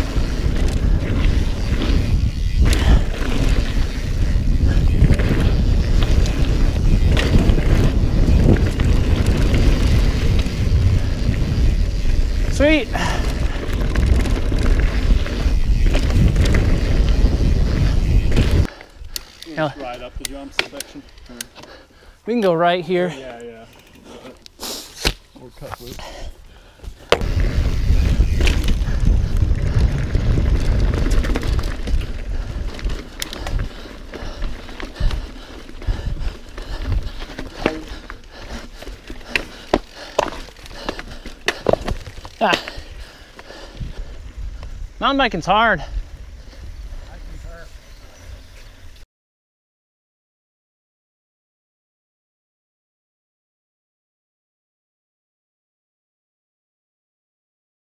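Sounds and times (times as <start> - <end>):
wind noise on microphone: 0.0 - 19.2, 26.9 - 49.0
bike clicks and rattles: 0.0 - 26.2, 26.8 - 45.2
bike tyres on dirt: 0.0 - 49.0.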